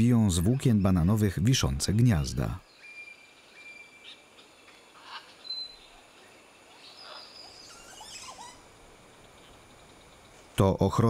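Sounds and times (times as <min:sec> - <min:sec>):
faint background hiss: 0:00.0 - 0:11.0
birds chirping and whistling: 0:02.7 - 0:06.0, 0:06.6 - 0:08.7.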